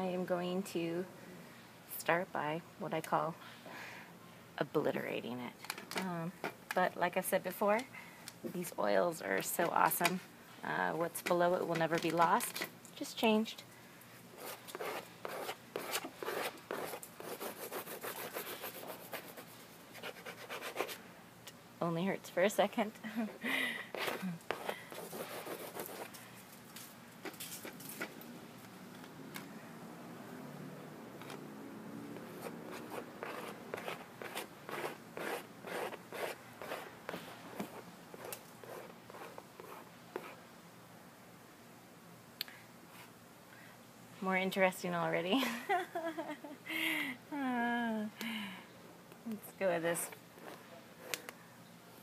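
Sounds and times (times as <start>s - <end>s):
paint scrubbing on canvas: 14.4s - 21.0s, 23.9s - 26.1s, 32.2s - 40.4s
paintbrush strokes on canvas: 23.9s - 26.1s.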